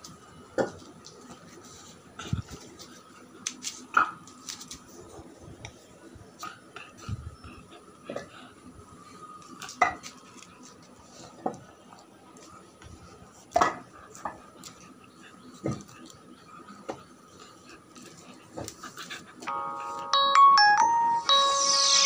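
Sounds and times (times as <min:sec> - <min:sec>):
faint steady high tone: 0:19.5 - 0:22.0.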